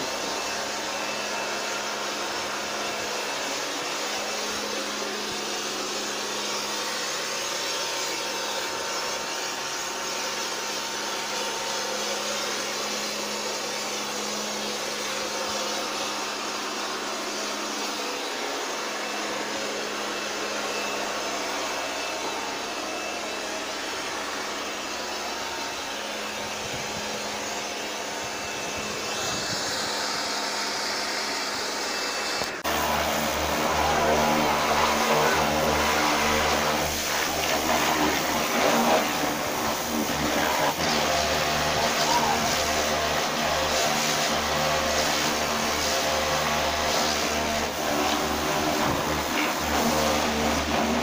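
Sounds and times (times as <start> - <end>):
pressure washer motor hum: 0.0 - 51.0
water jet hissing: 29.0 - 51.0.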